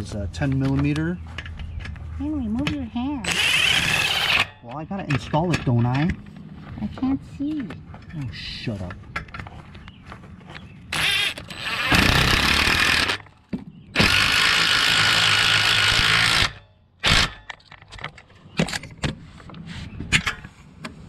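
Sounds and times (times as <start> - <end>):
cordless power tool driving bolts: 3.2 - 4.5, 10.9 - 13.3, 13.9 - 18.1.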